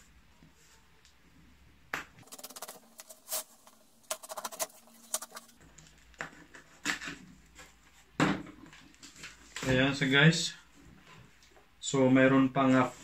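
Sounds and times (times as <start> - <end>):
knife scraping packing tape: 2.2 - 5.5
cardboard flaps rustling: 2.2 - 5.6.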